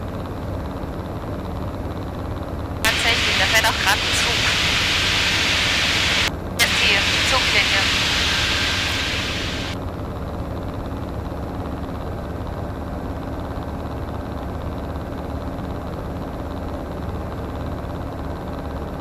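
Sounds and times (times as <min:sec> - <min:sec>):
light aircraft engine drone: 0:02.9 - 0:09.8.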